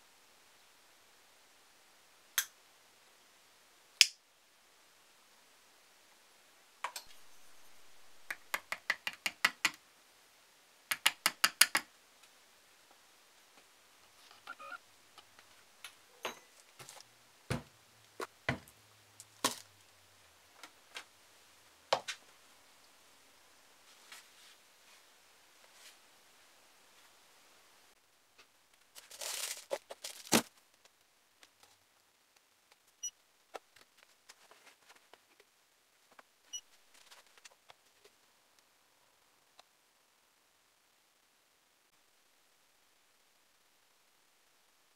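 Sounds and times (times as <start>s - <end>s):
metal spatula tapping beans: 8.2s - 9.8s, 10.9s - 11.9s.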